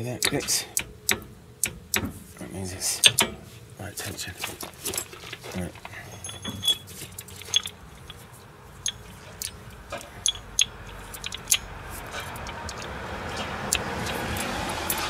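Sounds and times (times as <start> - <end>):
metallic tool clinks: 4.7 - 6.8
rushing noise: 11.6 - 15.0.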